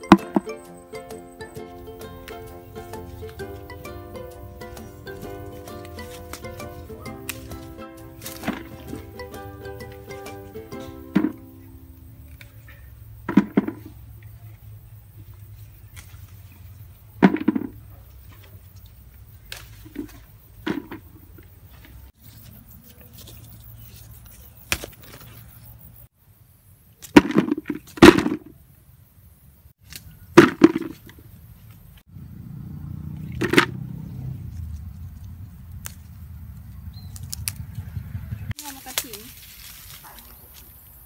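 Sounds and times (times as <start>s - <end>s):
eggplants snapping off plant: 4.6s - 9.2s, 15.8s - 16.4s, 19.4s - 21.1s, 24.3s - 25.4s, 35.7s - 36.2s, 37.0s - 37.7s
hollow knocks in plastic bucket: 13.3s - 13.9s, 17.2s - 17.8s.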